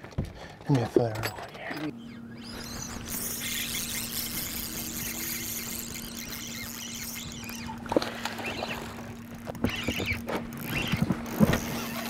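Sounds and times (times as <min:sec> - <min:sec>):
boat engine hum: 0:00.0 - 0:12.0
fish splashing: 0:02.5 - 0:11.0.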